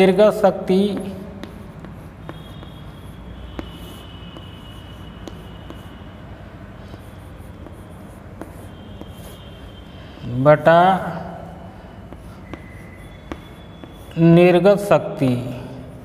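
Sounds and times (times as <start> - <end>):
chalk scratching on chalkboard: 0.7 - 6.2, 6.8 - 9.9, 12.0 - 14.9
chalk tapping on board: 0.7 - 6.2, 6.8 - 9.8, 12.0 - 14.3.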